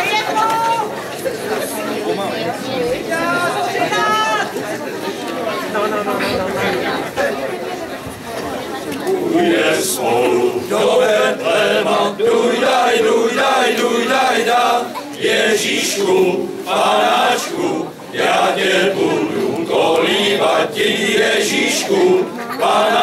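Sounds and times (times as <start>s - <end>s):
men's choir singing a carol: 9.2s - 23.0s.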